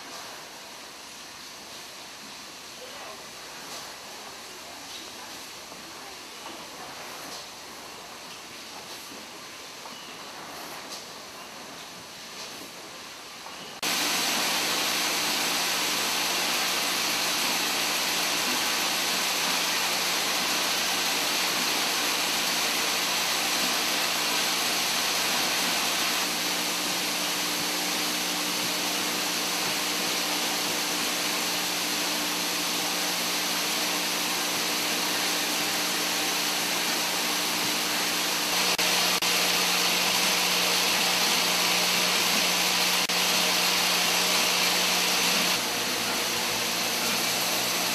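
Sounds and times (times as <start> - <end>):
machinery mechanical hum: 0.0 - 47.9
even hiss: 13.8 - 47.9.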